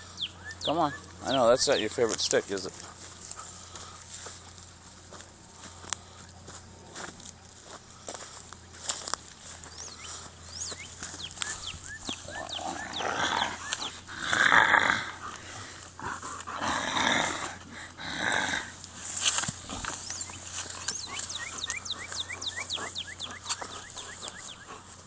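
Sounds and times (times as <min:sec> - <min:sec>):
dog growling in play: 0:12.3 - 0:18.8.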